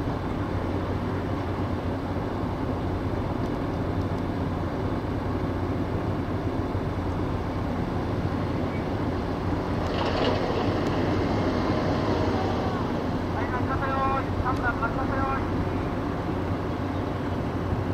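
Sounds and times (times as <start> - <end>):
harbour noise: 0.0 - 17.9
ship engine humming: 0.0 - 17.9.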